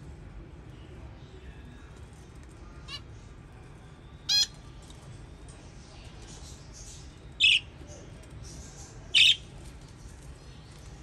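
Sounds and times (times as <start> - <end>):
budgerigar chirp: 7.4 - 7.7.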